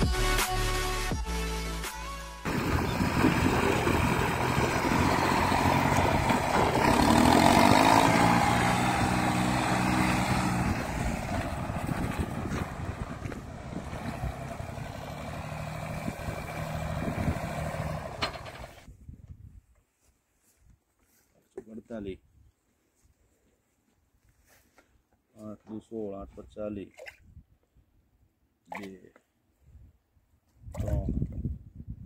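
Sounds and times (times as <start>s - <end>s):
tractor engine humming: 2.5s - 18.9s.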